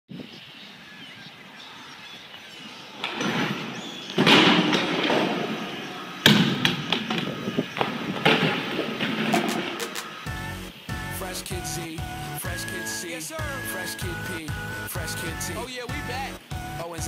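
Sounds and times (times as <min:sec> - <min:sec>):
bike crashing onto concrete: 0:03.0 - 0:10.2
bike knocks tumbling: 0:03.1 - 0:09.8.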